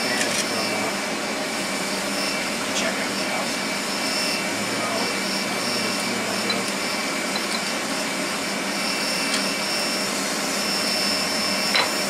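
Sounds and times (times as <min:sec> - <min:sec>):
whooshing machine noise: 0:00.0 - 0:12.0.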